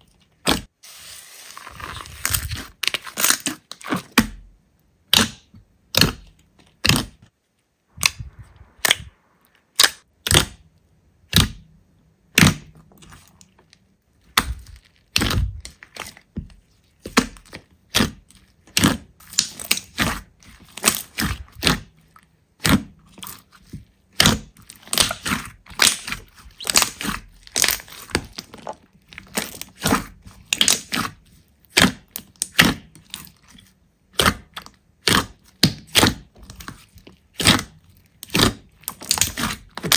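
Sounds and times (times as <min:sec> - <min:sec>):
slime squeezed crackling and popping: 0:14.2 - 0:16.3, 0:17.0 - 0:22.0, 0:22.6 - 0:39.9.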